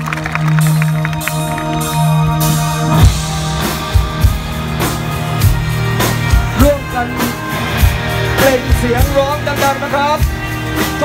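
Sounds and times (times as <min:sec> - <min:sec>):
live band music over a pa: 0:00.0 - 0:11.0
drum kit hits: 0:02.5 - 0:11.0.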